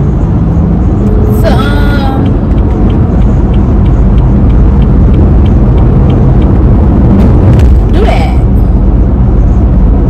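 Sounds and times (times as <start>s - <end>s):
low rumble inside car: 0.0s - 10.0s
faint regular ticking: 1.3s - 7.1s.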